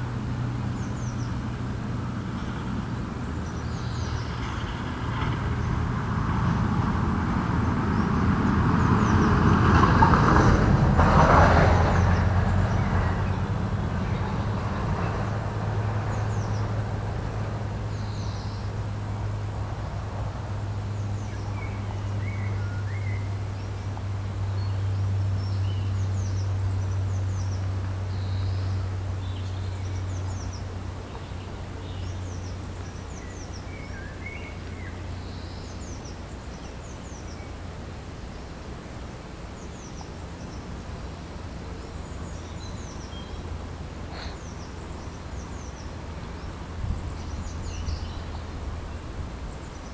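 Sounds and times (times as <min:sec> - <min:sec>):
birds singing and calling: 0:17.8 - 0:18.7, 0:20.8 - 0:38.7, 0:39.5 - 0:49.9.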